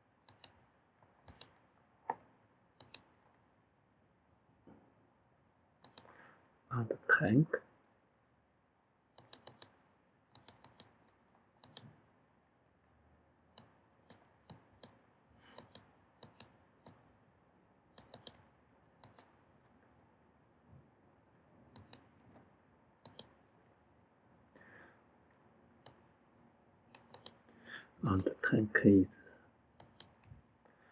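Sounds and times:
computer mouse clicks: 0:00.2 - 0:00.6, 0:01.2 - 0:01.6, 0:02.8 - 0:03.1, 0:05.8 - 0:06.1, 0:09.2 - 0:12.0, 0:13.6 - 0:17.0, 0:17.9 - 0:18.4, 0:19.0 - 0:19.4, 0:21.7 - 0:22.1, 0:23.0 - 0:23.4, 0:25.8 - 0:26.0, 0:26.9 - 0:27.4, 0:29.8 - 0:30.3.

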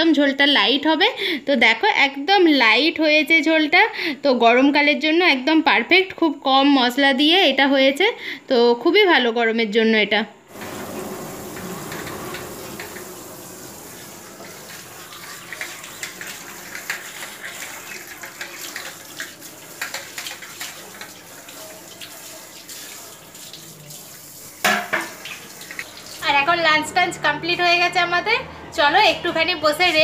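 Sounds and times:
tap water running onto concrete: 0:10.5 - 0:26.4
dishes clattering: 0:14.5 - 0:21.2, 0:24.6 - 0:25.8
dishes clinking: 0:15.4 - 0:21.2, 0:24.7 - 0:25.8.

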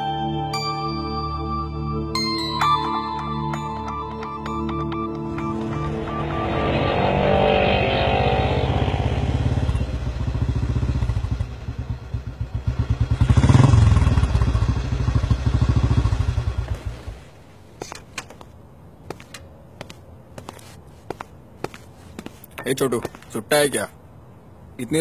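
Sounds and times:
motorcycle engine running: 0:05.6 - 0:17.0.

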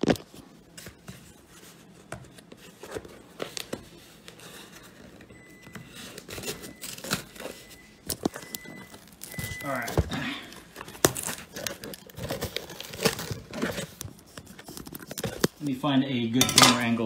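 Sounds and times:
scissors cutting cardboard: 0:01.8 - 0:15.6
crinkling of tape: 0:06.2 - 0:15.8.

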